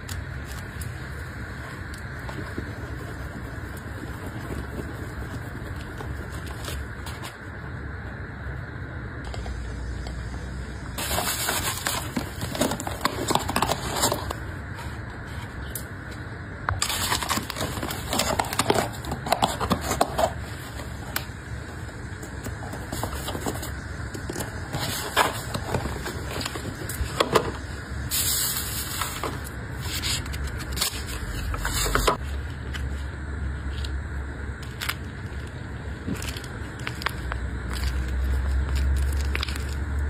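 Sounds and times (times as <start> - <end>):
shredded paper crinkling: 0.0 - 7.4, 11.0 - 15.7, 16.8 - 33.9, 34.6 - 40.0
paperboard rustling and crinkling: 0.0 - 7.5, 11.0 - 15.7, 16.8 - 33.1.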